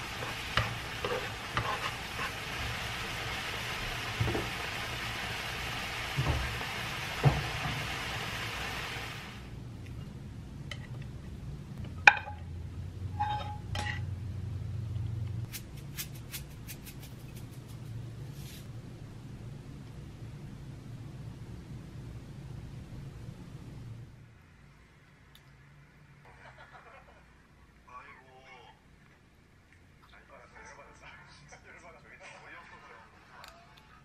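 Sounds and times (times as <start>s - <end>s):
food sizzling in a frying pan: 0.0s - 9.5s
food scraped into ceramic dish: 0.2s - 2.4s
dish clink: 13.2s - 14.0s
sesame seeds sprinkling clicks: 15.5s - 18.0s.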